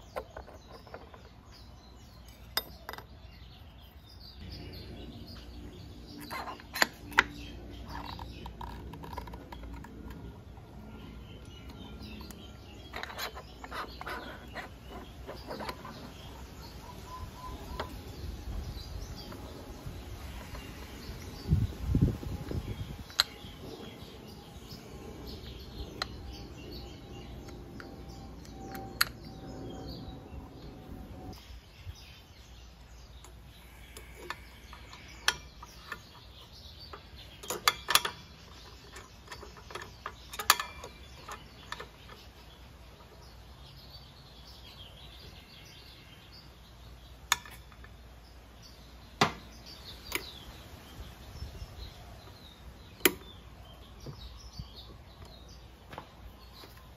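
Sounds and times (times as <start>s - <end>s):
birds chirping: 0.0s - 56.9s
metal tools clicking and clinking: 37.3s - 42.2s.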